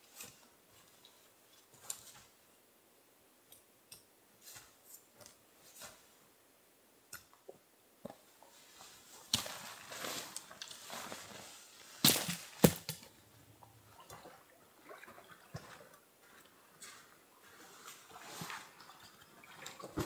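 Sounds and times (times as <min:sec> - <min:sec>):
nylon fabric rustling: 0:08.5 - 0:12.8.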